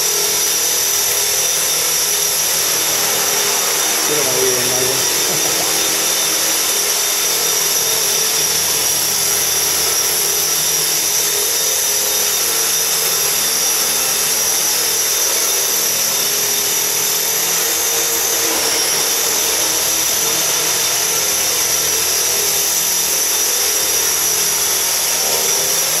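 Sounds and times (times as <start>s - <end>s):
high-pitched electric motor whine: 0.0s - 26.0s
wavering rotor hum: 0.0s - 26.0s.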